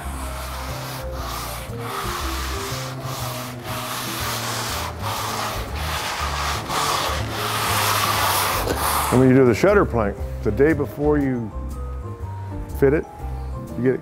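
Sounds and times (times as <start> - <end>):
sanding block rubbing wood: 0.0 - 9.4.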